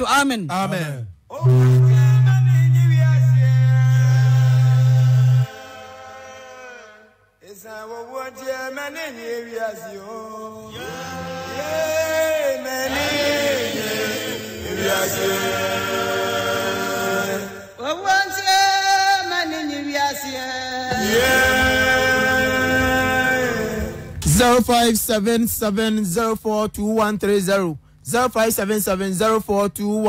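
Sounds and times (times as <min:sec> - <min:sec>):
chant-like singing: 0:10.1 - 0:17.6, 0:20.7 - 0:24.2.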